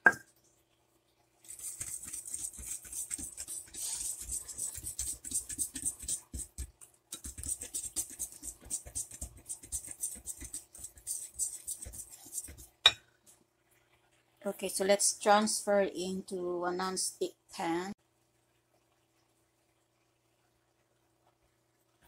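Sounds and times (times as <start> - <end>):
whisk beating batter in a bowl: 1.4 - 12.8.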